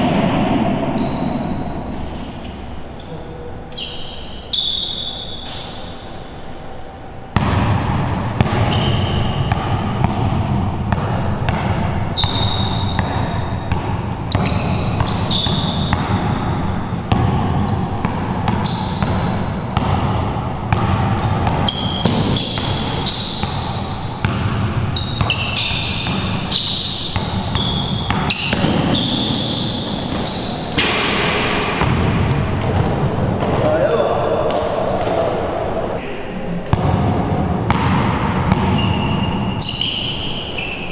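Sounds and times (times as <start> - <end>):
steady low hum: 0.0 - 40.9
sneaker squeaks: 0.9 - 6.8, 8.1 - 10.1, 10.9 - 20.0, 20.6 - 30.9, 37.7 - 40.9
basketball bouncing on hard court: 7.4 - 33.7, 36.6 - 40.7.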